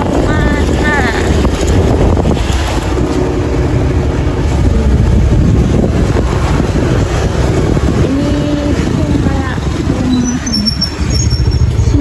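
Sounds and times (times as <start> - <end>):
vehicle engine and road rumble: 0.0 - 12.0
wind buffeting microphone: 0.0 - 12.0.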